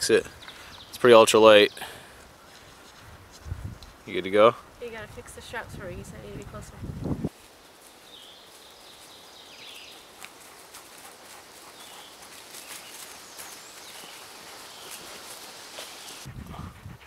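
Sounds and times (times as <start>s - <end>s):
footsteps crunching through dry leaves: 7.3s - 16.3s.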